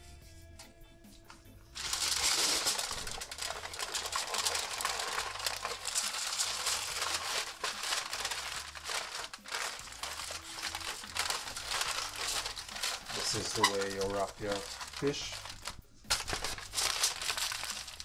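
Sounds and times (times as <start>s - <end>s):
aluminium foil crinkling: 1.8s - 18.0s.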